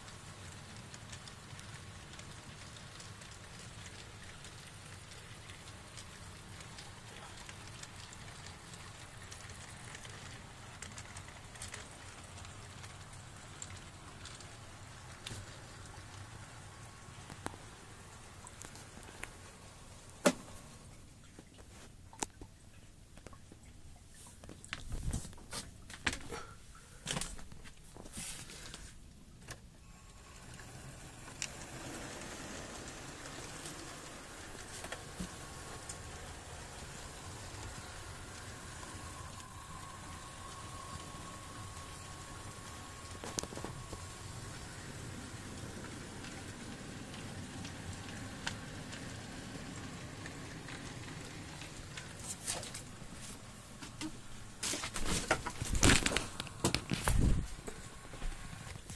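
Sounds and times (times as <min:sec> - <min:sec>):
model train running on track: 0:00.0 - 0:19.0, 0:30.0 - 0:52.2
louder clicks and rustling: 0:51.5 - 0:58.9.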